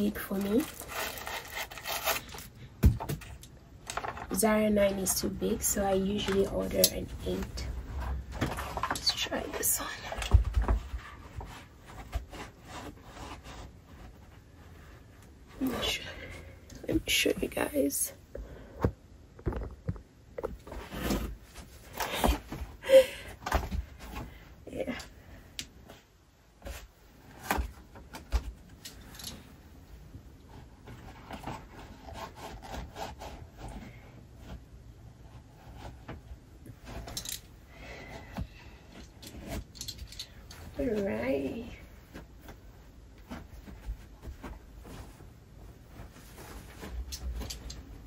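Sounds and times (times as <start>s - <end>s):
clothing rustling: 19.6s - 48.0s.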